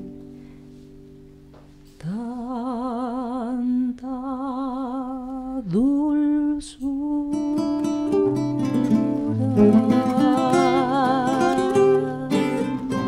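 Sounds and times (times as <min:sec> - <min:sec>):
woman singing with vibrato: 0:02.0 - 0:13.0
acoustic guitars strumming: 0:07.3 - 0:13.0.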